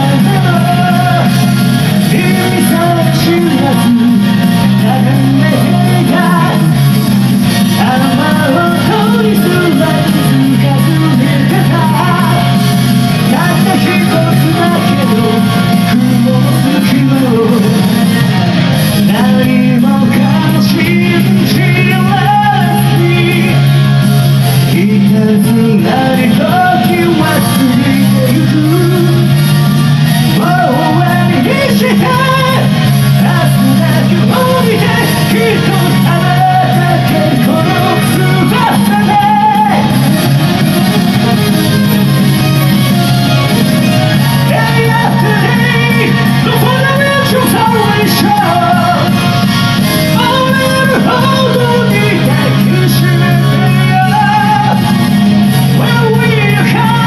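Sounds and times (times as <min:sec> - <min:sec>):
heavy metal band: 0:00.0 - 0:57.0
person singing high: 0:44.3 - 0:49.1.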